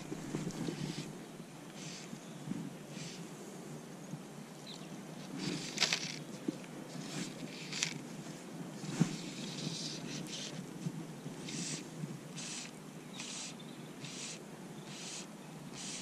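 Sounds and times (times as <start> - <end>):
fly line hissing through rod guides: 1.8 - 2.2, 11.4 - 16.0.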